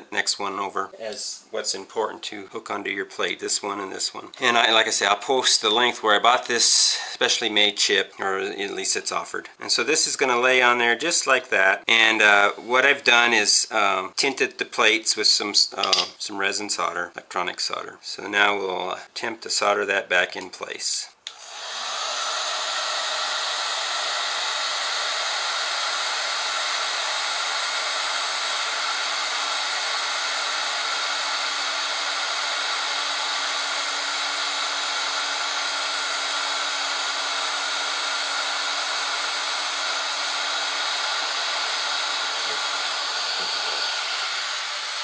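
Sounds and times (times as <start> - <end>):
blower hum: 21.3 - 45.0
hot-air blower hissing: 21.3 - 45.0.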